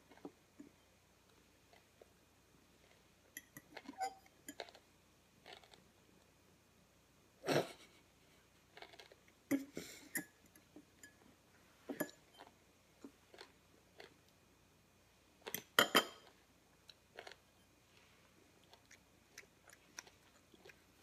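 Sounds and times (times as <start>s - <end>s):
chewing: 5.4s - 5.8s, 8.7s - 9.3s, 12.4s - 14.2s, 16.8s - 17.4s, 18.4s - 21.0s.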